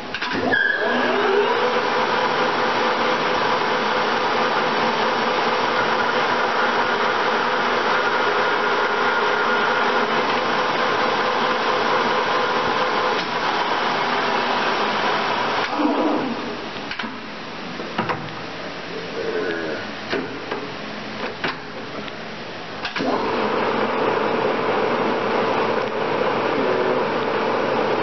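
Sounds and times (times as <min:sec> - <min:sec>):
lathe gear whine: 0:00.3 - 0:15.8
lathe running mechanical whine: 0:00.3 - 0:16.6, 0:23.0 - 0:28.0.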